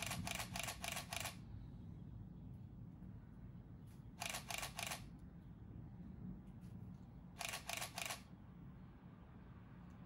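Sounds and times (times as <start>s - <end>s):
camera shutter clicks: 0.0s - 1.4s, 4.2s - 5.1s, 7.4s - 8.3s
low background noise: 0.0s - 10.0s.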